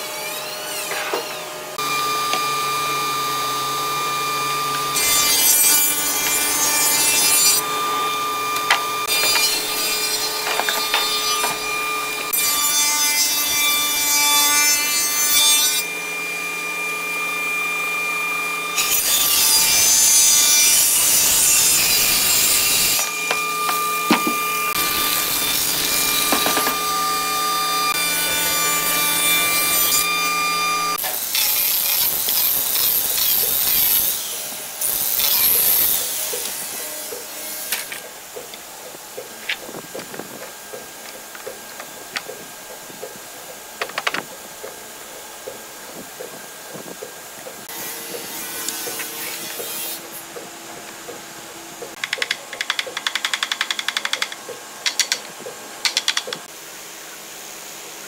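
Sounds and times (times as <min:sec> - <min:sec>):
spindle moulder cutting wood: 0:00.9 - 0:12.6, 0:21.8 - 0:31.1
handheld power tool running: 0:01.8 - 0:12.4.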